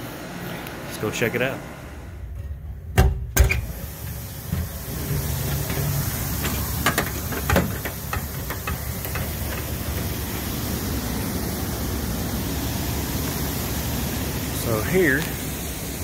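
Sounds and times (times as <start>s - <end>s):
cooling tower rushing noise: 0.0s - 16.0s
sharp knocks and clicks: 6.4s - 9.7s.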